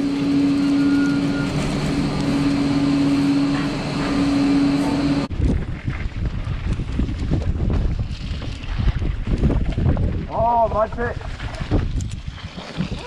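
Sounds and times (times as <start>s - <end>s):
steady low hum: 0.0s - 5.3s
mountain bike rumble and rattle: 0.0s - 13.0s
wind buffeting microphone: 0.0s - 13.0s.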